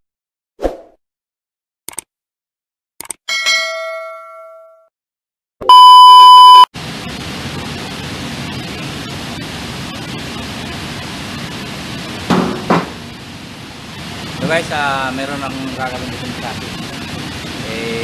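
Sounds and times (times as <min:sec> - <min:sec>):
loud electronic beep: 0:05.6 - 0:06.7
workshop background hiss: 0:08.8 - 0:18.0.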